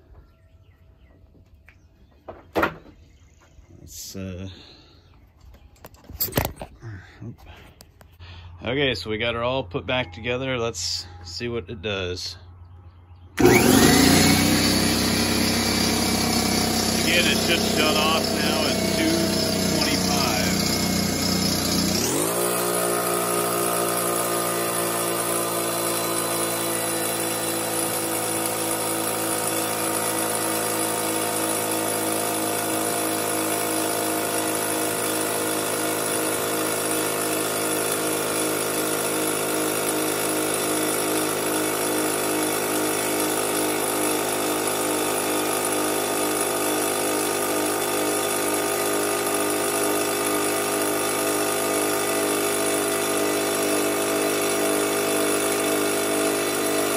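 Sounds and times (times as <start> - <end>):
air compressor running: 13.4 - 56.9.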